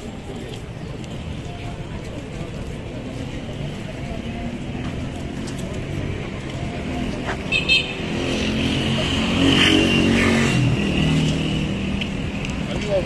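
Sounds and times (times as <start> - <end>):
steady traffic noise: 0.0 - 13.0.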